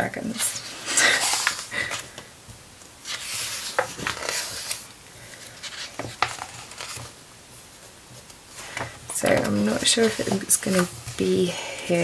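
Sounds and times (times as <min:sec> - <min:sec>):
book pages rustling: 0:00.2 - 0:07.2, 0:07.8 - 0:12.0
pages tapping: 0:05.7 - 0:07.1, 0:08.2 - 0:11.4.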